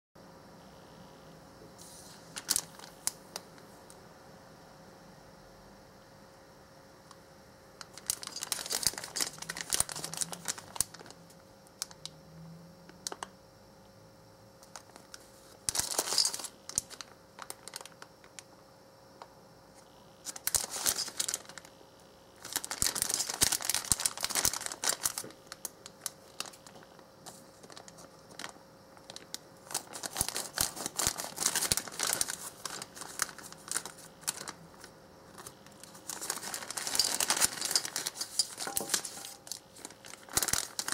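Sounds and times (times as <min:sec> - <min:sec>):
plastic candy packet crinkling: 0:02.3 - 0:03.4, 0:07.8 - 0:12.1, 0:14.6 - 0:18.5, 0:20.2 - 0:21.7, 0:22.4 - 0:40.9.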